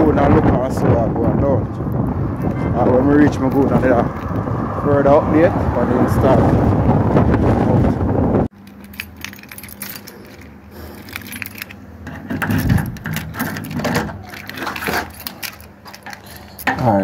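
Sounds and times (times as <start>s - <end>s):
wind on microphone: 0.0s - 8.5s
small hard objects clinking: 8.5s - 11.8s, 12.4s - 17.0s.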